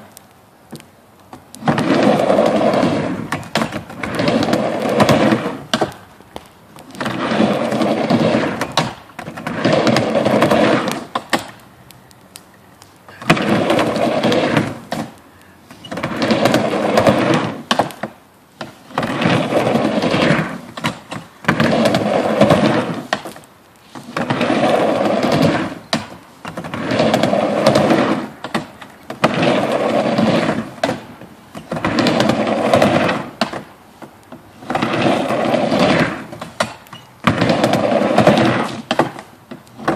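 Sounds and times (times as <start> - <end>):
skateboard wheels rumbling on ramp: 0.7 - 11.6, 13.1 - 39.9.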